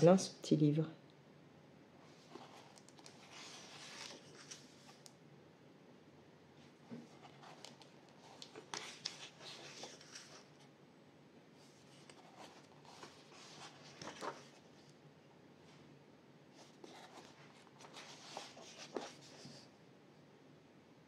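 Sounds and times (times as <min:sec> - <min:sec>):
paper pages rustling: 0:02.1 - 0:05.0, 0:06.9 - 0:10.7, 0:11.6 - 0:15.0, 0:16.6 - 0:19.7.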